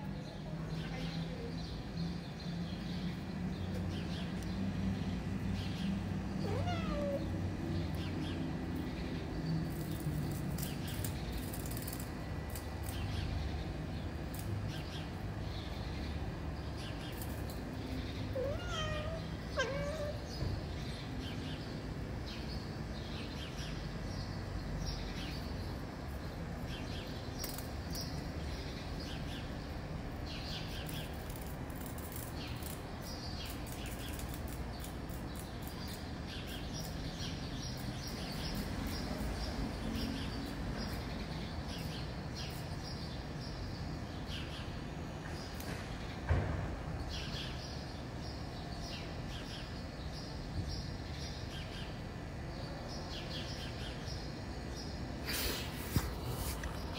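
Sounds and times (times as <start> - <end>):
cat meowing: 6.4 - 7.4, 18.3 - 20.4.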